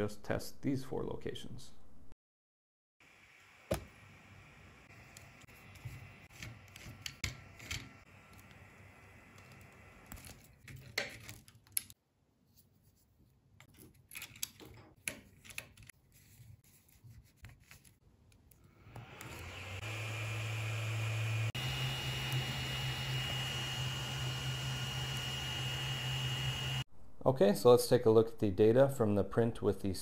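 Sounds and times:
screwdriver screwing: 5.2s - 8.6s, 13.6s - 15.9s
plastic parts clicking and scraping: 9.4s - 12.0s, 13.6s - 16.0s.

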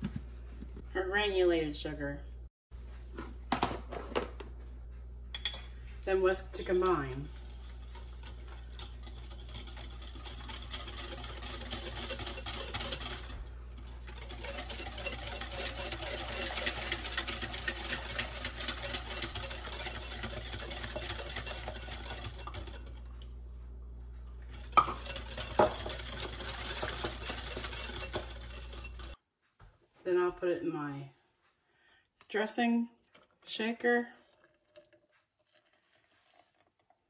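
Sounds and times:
whisk ticking against glass bowl: 6.5s - 23.2s, 24.5s - 29.2s.

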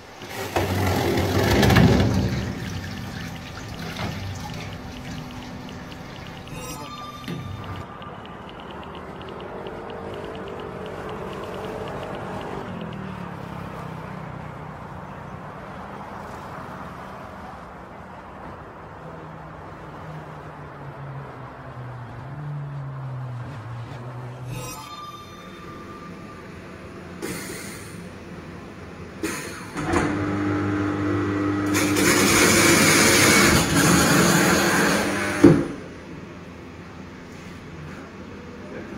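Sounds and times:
fast light ticking: 4.4s - 13.3s.

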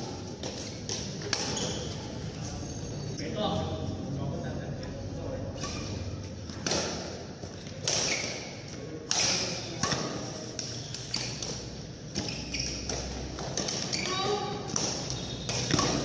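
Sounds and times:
badminton racket hitting shuttlecock: 0.0s - 1.8s, 5.6s - 16.0s.

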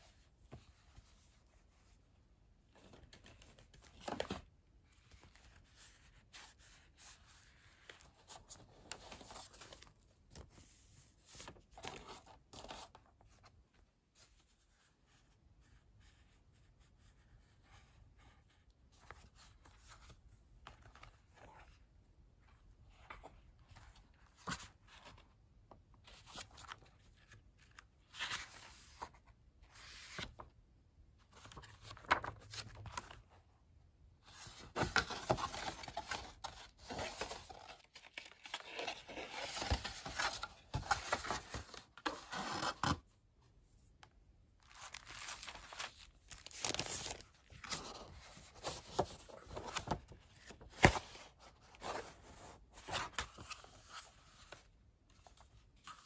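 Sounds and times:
notebook handling: 2.8s - 10.6s, 11.3s - 13.2s, 31.3s - 33.3s, 34.4s - 43.0s, 44.6s - 54.6s
cardboard packaging rustling: 34.4s - 43.0s, 44.6s - 54.6s.

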